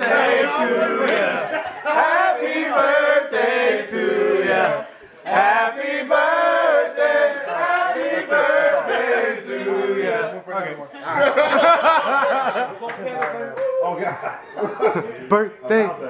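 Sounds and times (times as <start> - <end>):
men singing together: 0.0 - 10.3.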